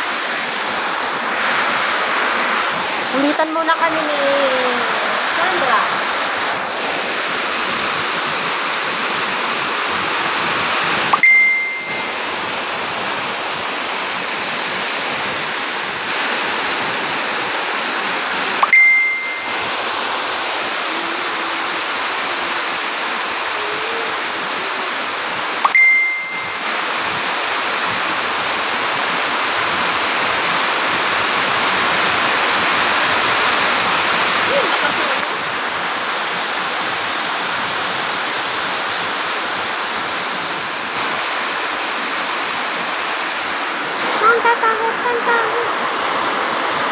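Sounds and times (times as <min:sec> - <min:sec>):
steady rushing noise: 0:00.0 - 0:46.9
short high ding: 0:11.1 - 0:12.3, 0:18.6 - 0:19.7, 0:25.6 - 0:26.6.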